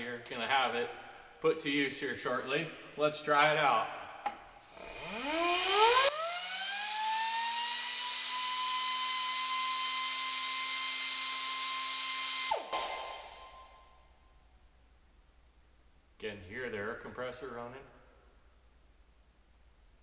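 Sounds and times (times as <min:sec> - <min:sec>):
die grinder whining: 0:04.7 - 0:12.6.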